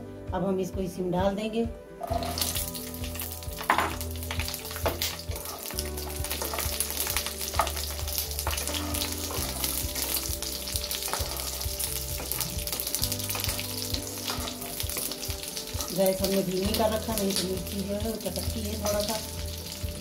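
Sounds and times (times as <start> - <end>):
chillies sizzling in oil: 2.0 - 20.0
wooden spatula stirring: 4.2 - 17.2.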